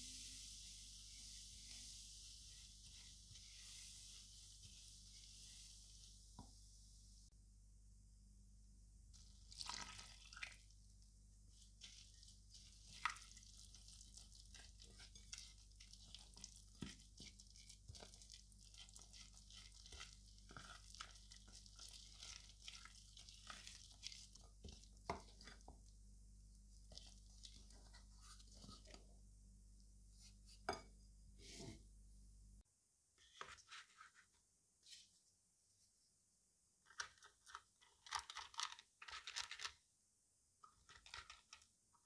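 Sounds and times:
spoon scraping sticky batter: 11.6 - 25.8.

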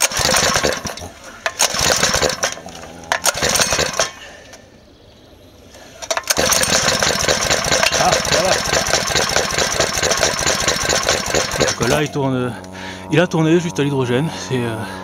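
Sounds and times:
small engine pull-started and running: 0.0 - 4.2, 6.0 - 12.8.

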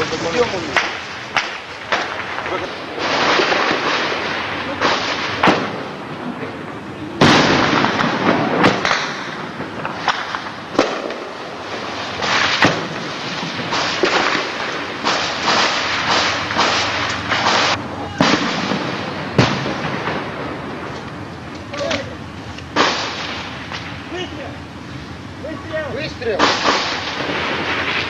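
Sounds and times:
crackle of gunfire: 0.0 - 24.3, 26.3 - 28.0
explosions: 0.0 - 24.4, 25.9 - 28.0
gunfire reports: 12.2 - 20.6, 26.4 - 28.0.

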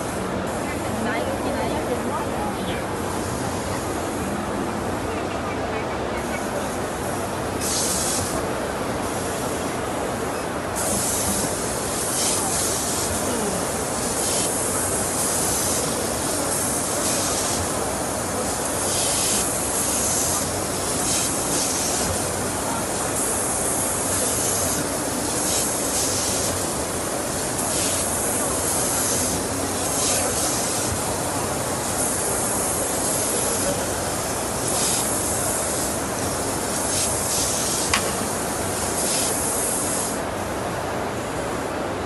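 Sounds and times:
compressed air hissing: 6.5 - 9.6, 10.8 - 40.3.

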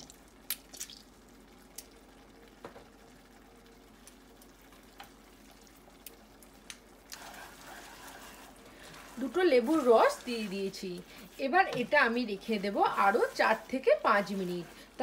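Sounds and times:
chutney simmering with pops: 0.0 - 15.0
spatula stirring and scraping pan: 7.1 - 15.0.

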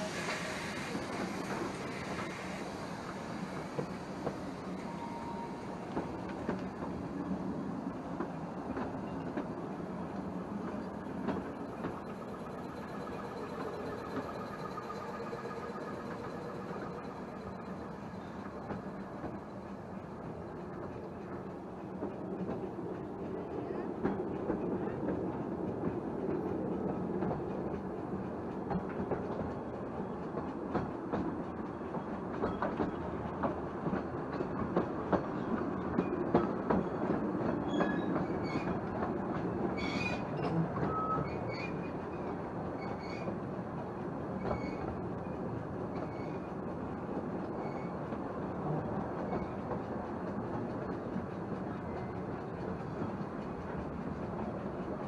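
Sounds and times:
high wheel squeals: 0.0 - 6.1, 11.4 - 19.6
railway carriage rumble: 0.0 - 55.0.

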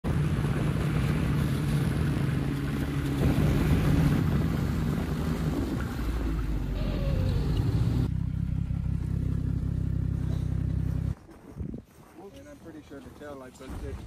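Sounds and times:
snowmobile engine running: 0.1 - 11.2.

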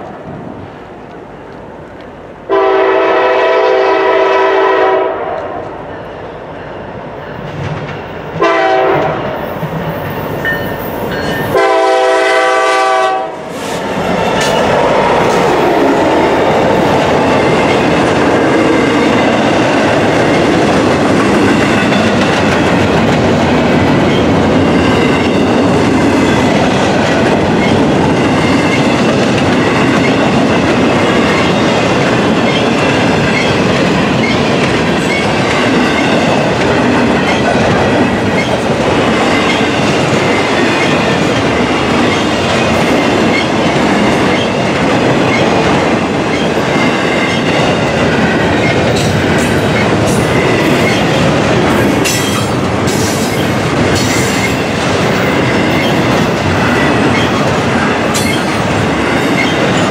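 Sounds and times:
diesel locomotives passing: 0.0 - 59.9
train wheels rumbling and clacking: 0.0 - 59.9
locomotive air horn blasts: 2.5 - 5.6, 8.4 - 9.3, 11.5 - 13.6.

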